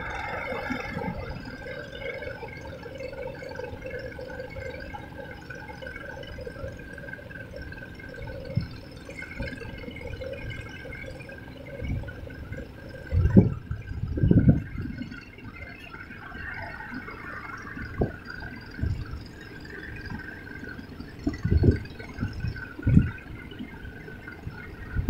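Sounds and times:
faint hum: 0.0 - 25.0.

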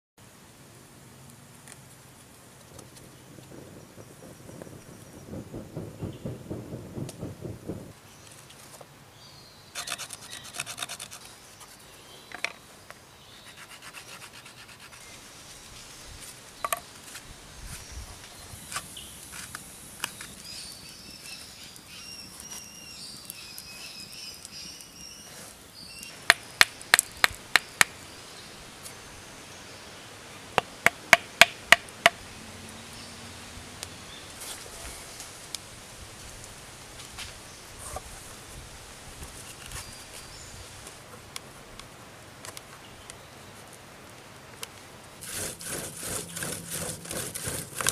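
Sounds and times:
small fire crackling: 0.6 - 47.9
scraping on stone slab: 9.8 - 11.8, 45.2 - 47.9
birds whistling: 20.1 - 26.6.

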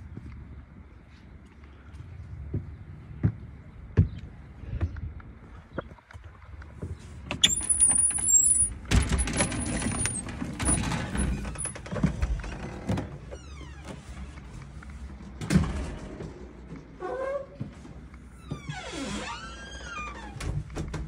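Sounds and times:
thin high door squeak: 7.3 - 11.8
door rattling and scuffing: 7.3 - 14.4.

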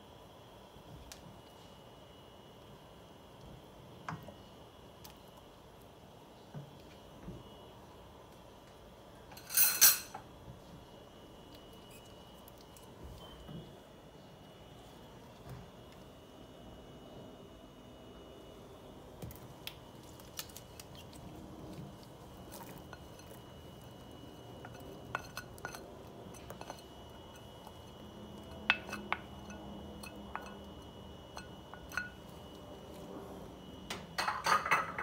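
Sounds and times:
spoon clinking on glass: 28.6 - 30.7, 31.4 - 32.2.

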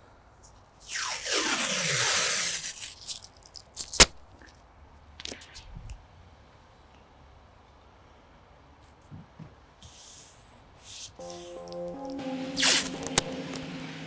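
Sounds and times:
masking tape ripping off roll: 0.8 - 4.2.

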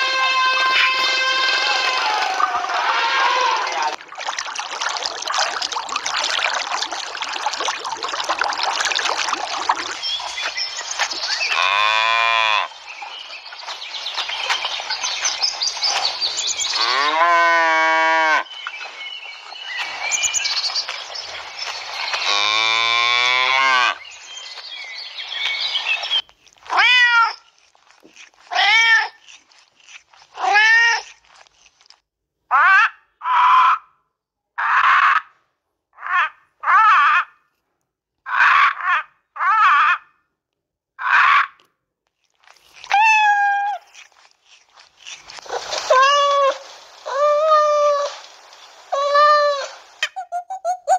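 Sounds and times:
cows mooing: 11.5 - 12.7, 16.7 - 18.4, 22.2 - 24.0.

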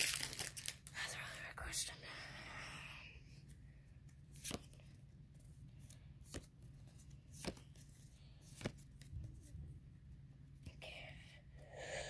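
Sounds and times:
trading cards handled: 0.0 - 0.9, 3.4 - 9.6
faint steady hum: 0.0 - 12.0.

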